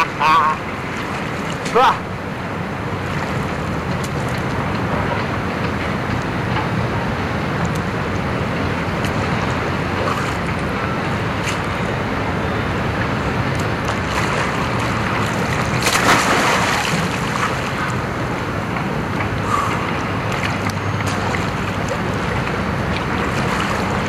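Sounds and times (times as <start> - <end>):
sea water washing in rock pool: 8.2 - 24.0.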